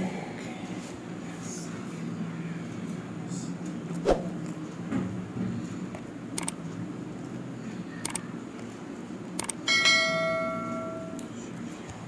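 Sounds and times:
short clicks: 6.4 - 6.6
bright bell chime: 9.7 - 11.2.

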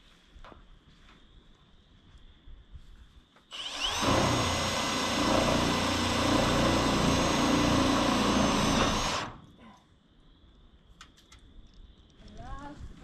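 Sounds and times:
power drill on metal roof: 3.5 - 9.5.

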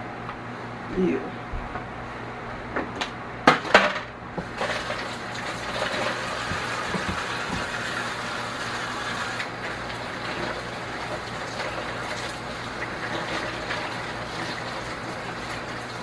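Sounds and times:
water running from a tap: 4.5 - 16.0.

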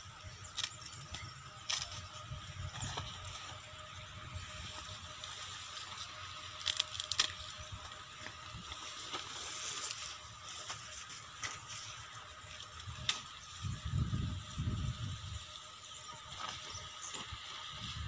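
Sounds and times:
dry corn plants rustling: 0.0 - 18.0
corn ears snapping: 0.4 - 3.6, 4.6 - 13.6.

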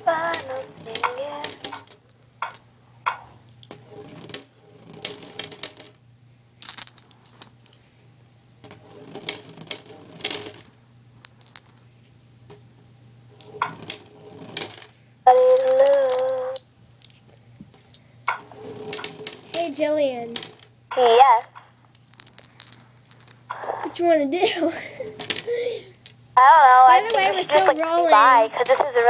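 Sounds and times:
rustling: 0.0 - 6.0, 6.6 - 12.2, 13.4 - 23.9, 24.7 - 29.0
light clicks and rattles: 0.2 - 4.4.

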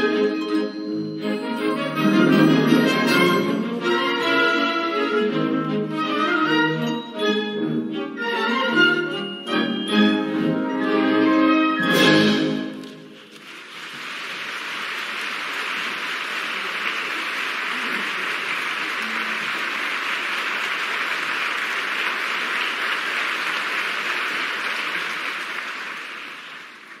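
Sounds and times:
audience applauding: 12.3 - 27.0.

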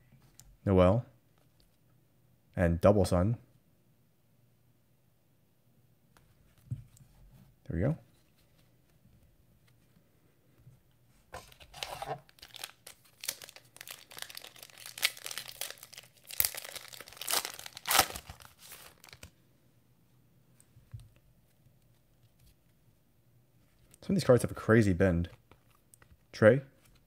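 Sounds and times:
foil wrapper tearing and crinkling: 11.5 - 19.3.

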